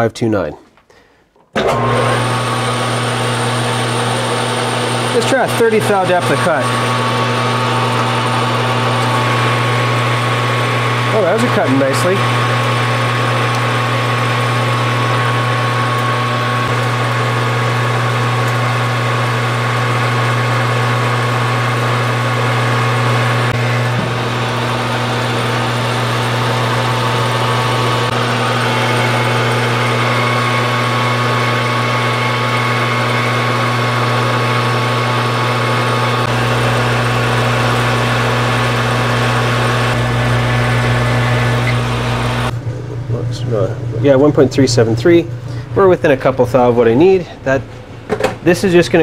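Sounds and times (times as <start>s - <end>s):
metal lathe motor hum: 1.6s - 49.0s.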